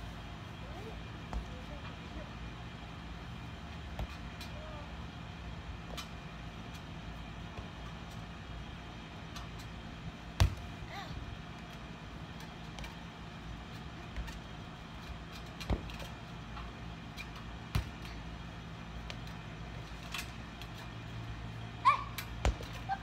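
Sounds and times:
steady outdoor hum: 0:00.0 - 0:23.0
tetherball thumps: 0:03.8 - 0:04.6, 0:09.3 - 0:10.8, 0:13.7 - 0:18.3, 0:22.2 - 0:22.9.

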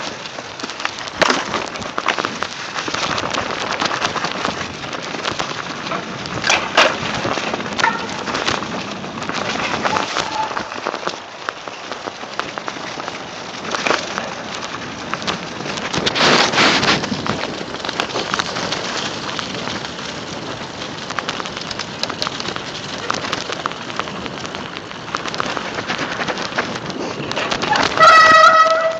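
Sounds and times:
bike rattling: 0:00.0 - 0:28.9
bike tyres crackling over dirt: 0:00.0 - 0:28.9.

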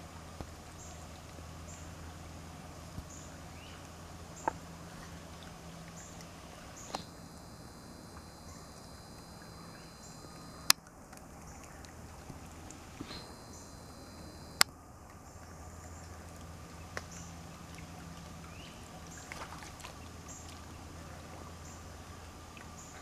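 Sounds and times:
low steady hum: 0:00.0 - 0:23.0
thin high whine: 0:06.5 - 0:10.7, 0:12.8 - 0:14.7.

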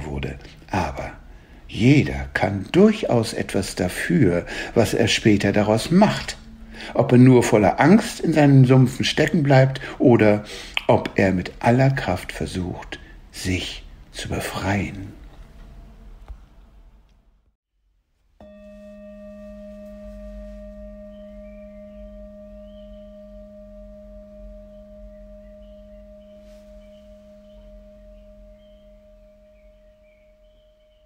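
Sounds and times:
singing bowl ringing: 0:05.4 - 0:08.7, 0:18.4 - 0:31.0
faint high chirps: 0:18.4 - 0:31.0.

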